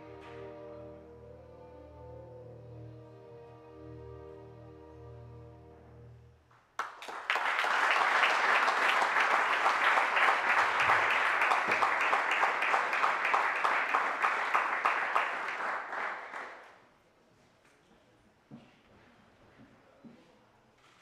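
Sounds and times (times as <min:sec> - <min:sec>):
audience applauding: 0:06.8 - 0:16.8.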